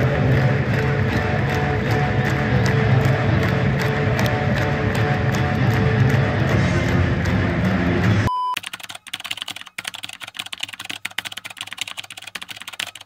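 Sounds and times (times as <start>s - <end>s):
background music: 0.0s - 8.3s
short high beep: 8.3s - 8.6s
computer keyboard typing: 8.6s - 13.0s.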